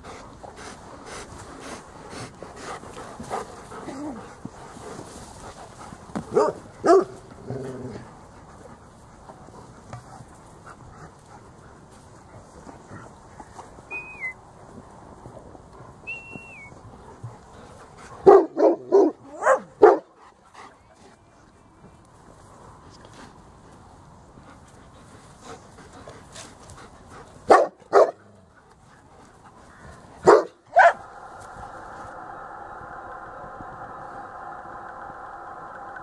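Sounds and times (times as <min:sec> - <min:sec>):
dog barking: 0:06.3 - 0:07.2, 0:18.2 - 0:20.1, 0:27.5 - 0:28.2, 0:30.2 - 0:31.1.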